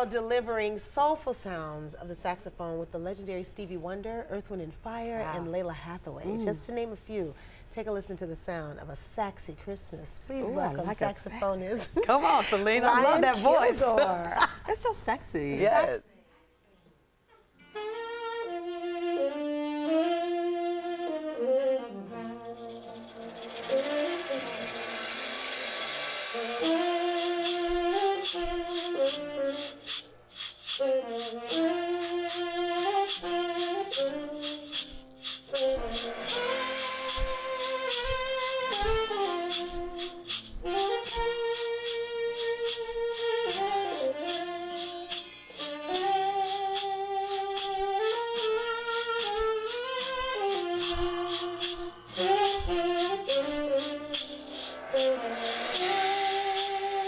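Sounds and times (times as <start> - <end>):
saxophone slow melody: 17.6 - 57.0
acoustic guitar: 21.6 - 57.0
hand shaker beat: 22.1 - 57.0.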